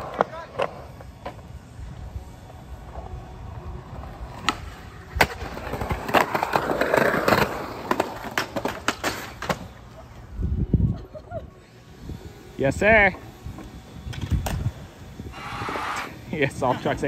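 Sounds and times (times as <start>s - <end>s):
skateboard clacks on concrete: 4.4s - 9.8s.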